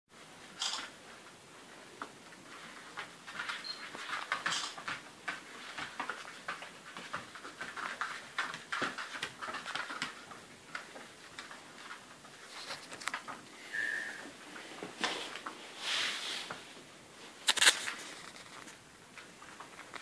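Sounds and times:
puppy claws clicking on floor: 2.0 - 13.4.

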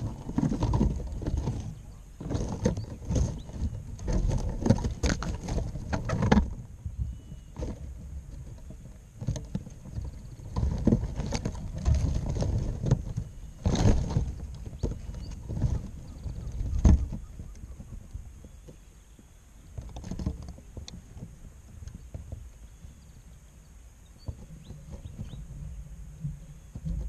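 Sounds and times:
faint high bird calls: 1.6 - 3.8, 6.9 - 7.8, 13.1 - 19.8, 21.9 - 26.9.

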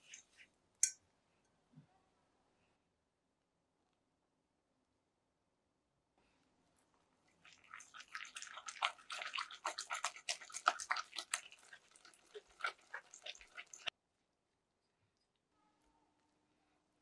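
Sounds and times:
whisk clicking and scraping glass bowl: 7.7 - 13.9.

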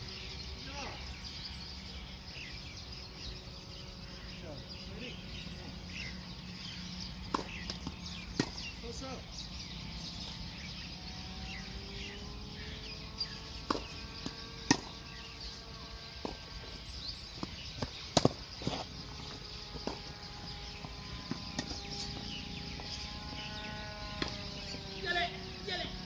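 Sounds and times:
faint drone: 0.0 - 26.0
tennis ball pops: 7.2 - 8.7, 13.6 - 15.0.

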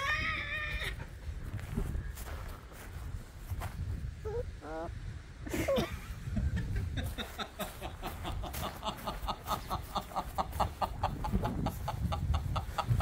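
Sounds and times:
puppy whining: 4.2 - 4.9.

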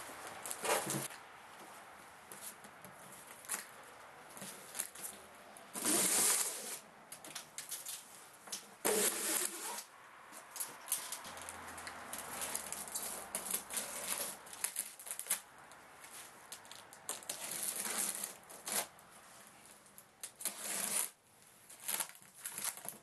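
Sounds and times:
packing straps scraping and rustling: 0.4 - 1.2, 4.4 - 6.8, 8.8 - 23.0.

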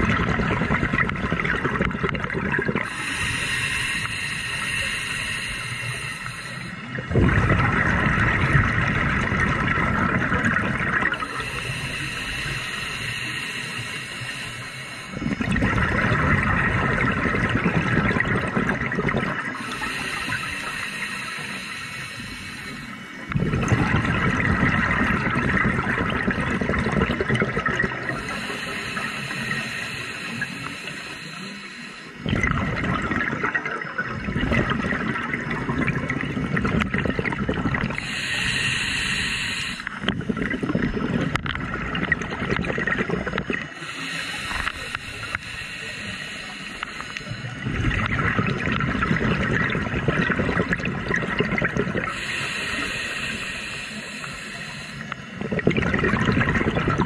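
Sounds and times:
bubbling exhales: 0.0 - 57.0
regulator hissing inhales: 2.8 - 6.9, 11.2 - 15.2, 19.5 - 23.3, 28.1 - 32.2, 37.9 - 40.1, 43.7 - 47.6, 52.0 - 55.4.

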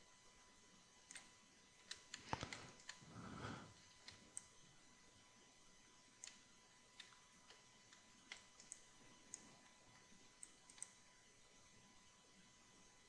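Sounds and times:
computer mouse and keyboard clicks: 1.1 - 3.0, 3.9 - 4.5, 6.2 - 6.4, 7.0 - 11.0.

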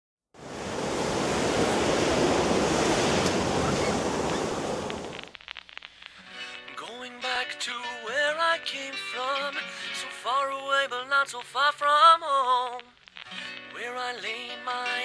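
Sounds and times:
ocean surf breaking: 0.4 - 5.3.

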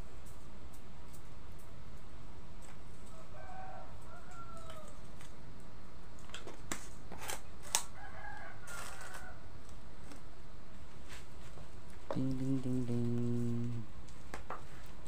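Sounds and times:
rooster crowing: 3.1 - 5.0, 7.9 - 9.5.

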